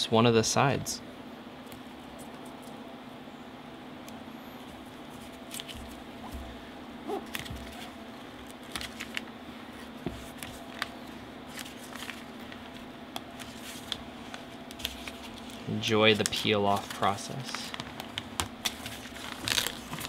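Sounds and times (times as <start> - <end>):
plastic film peeling: 5.0 - 6.0, 7.2 - 20.0.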